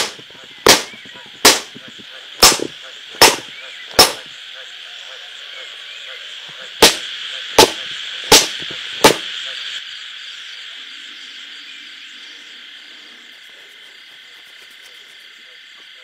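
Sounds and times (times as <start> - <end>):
insects chirring: 0.0 - 16.0
clay slapped on wooden stump: 7.6 - 9.2.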